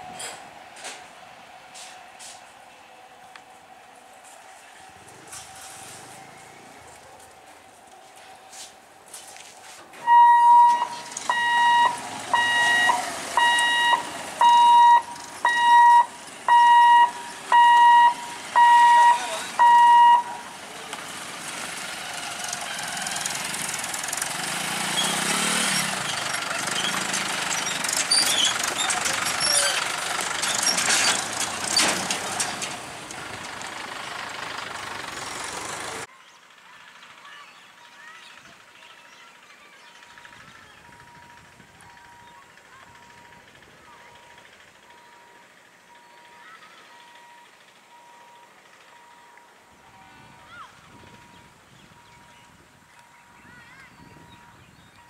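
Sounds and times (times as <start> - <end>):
motorcycles passing: 9.9 - 36.8
tractor diesel engine clattering: 9.9 - 55.0
electronic warning beeps: 10.0 - 20.5.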